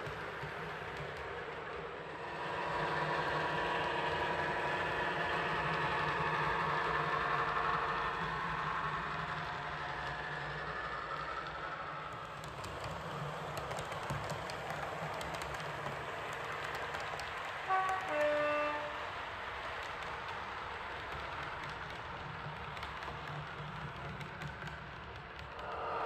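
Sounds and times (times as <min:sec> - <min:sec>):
model train running noise: 0:00.0 - 0:26.0
two-tone train horn: 0:17.7 - 0:19.1.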